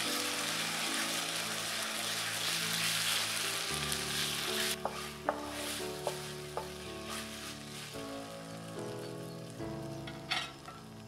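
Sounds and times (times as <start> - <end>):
sauce sizzling in frying pan: 0.0 - 11.0
soft background music: 0.0 - 11.0.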